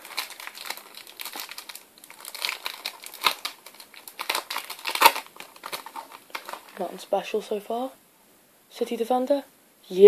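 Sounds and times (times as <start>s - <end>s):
foil packet tearing and crinkling: 0.0s - 6.9s.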